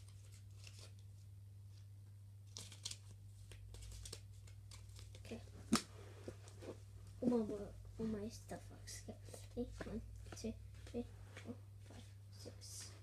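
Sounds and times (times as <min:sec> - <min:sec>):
playing cards shuffling: 0:00.0 - 0:01.0, 0:02.5 - 0:06.8.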